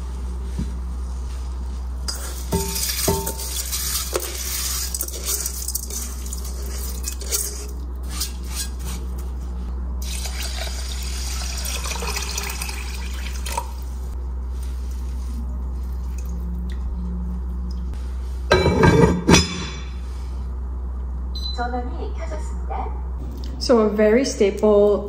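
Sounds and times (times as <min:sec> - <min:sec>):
water poured into pot: 0:10.0 - 0:13.8.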